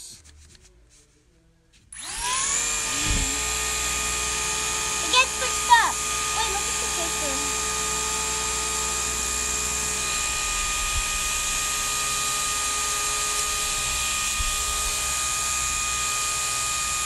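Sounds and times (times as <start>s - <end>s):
propeller motor whirring: 2.0s - 17.0s.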